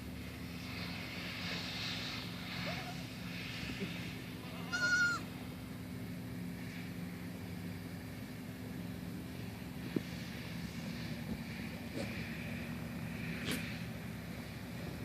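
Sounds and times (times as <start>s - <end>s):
goat kid bleating: 4.6s - 5.3s.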